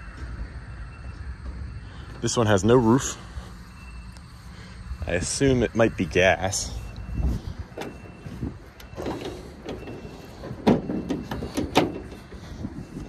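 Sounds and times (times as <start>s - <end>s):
metal hood clanking: 8.8s - 12.5s.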